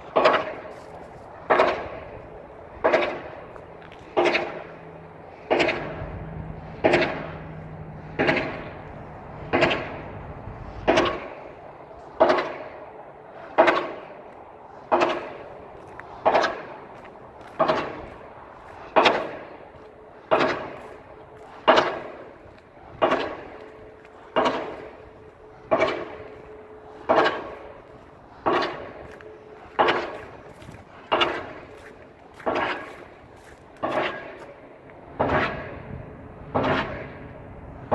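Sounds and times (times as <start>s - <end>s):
pile driver heavy metallic blows: 0.0s - 37.9s.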